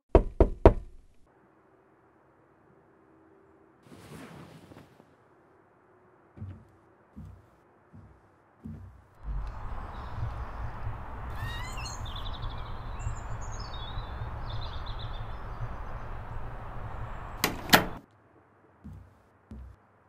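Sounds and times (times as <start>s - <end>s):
small birds chirping: 7.2s - 18.0s
wind rumbling on microphone: 9.2s - 18.0s
door banging shut: 17.4s - 18.0s.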